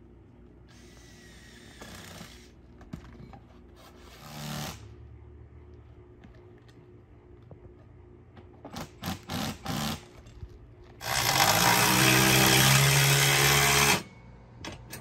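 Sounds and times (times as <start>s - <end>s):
power drill running: 0.7s - 2.6s, 11.0s - 14.1s.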